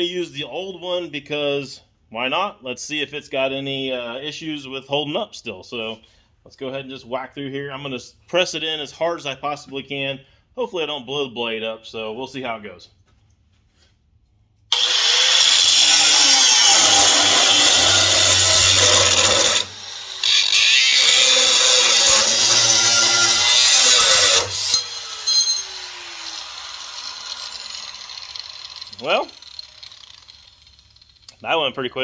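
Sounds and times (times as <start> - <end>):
angle grinder cutting sheet metal: 14.7 - 31.3
grinder motor winding down: 14.7 - 31.3.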